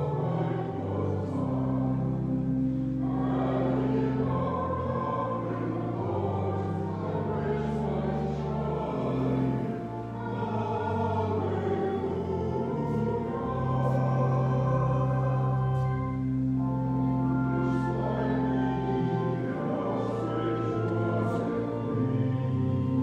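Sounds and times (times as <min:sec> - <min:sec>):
group singing a hymn: 0:00.0 - 0:23.0
organ long low notes: 0:00.0 - 0:23.0.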